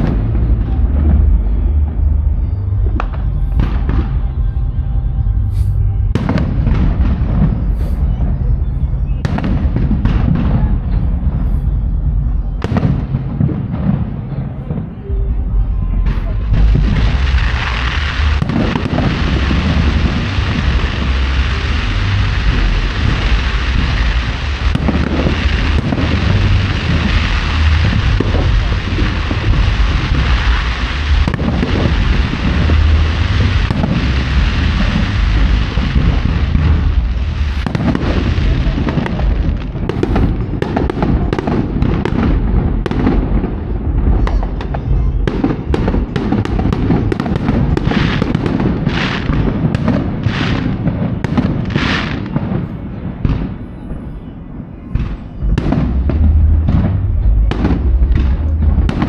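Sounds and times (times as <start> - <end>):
fireworks bangs: 0.0 - 59.0
fireworks rumble and crackle: 0.0 - 59.0.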